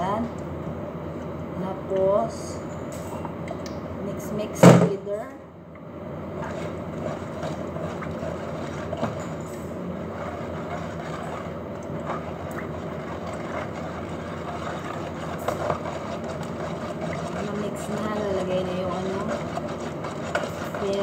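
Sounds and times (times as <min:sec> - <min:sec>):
whisk swishing batter: 0:06.3 - 0:21.0
whisk wires clicking on bowl: 0:06.4 - 0:21.0.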